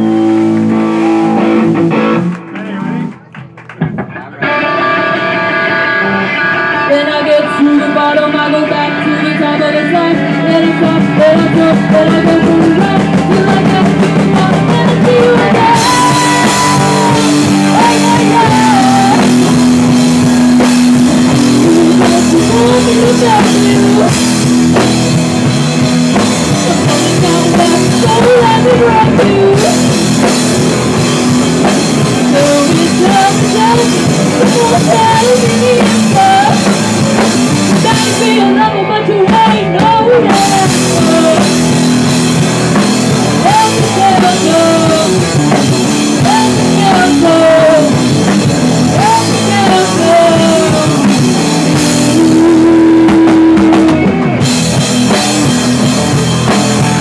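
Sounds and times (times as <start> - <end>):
drum kit: 0.0 - 57.0
electric guitar: 0.0 - 57.0
woman singing: 6.8 - 24.9, 26.1 - 31.0, 31.6 - 54.4.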